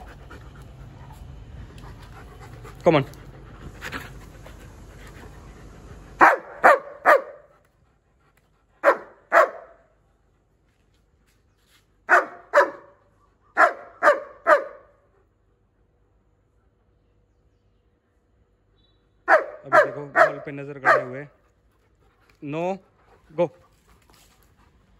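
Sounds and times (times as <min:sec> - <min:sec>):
dog panting: 0:00.0 - 0:09.7, 0:19.4 - 0:24.9
dogs barking: 0:06.2 - 0:07.5, 0:08.8 - 0:09.8, 0:12.1 - 0:15.1, 0:19.2 - 0:21.4.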